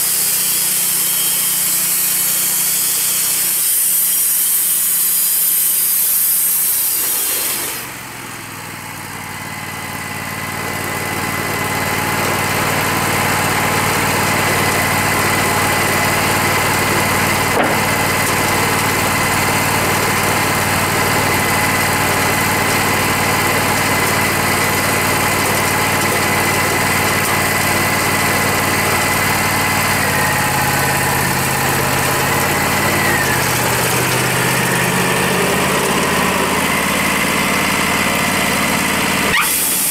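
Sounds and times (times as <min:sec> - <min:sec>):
bandsaw blade sawing hiss: 0:00.0 - 0:08.0, 0:38.6 - 0:39.9
engine with high whine: 0:00.0 - 0:39.9.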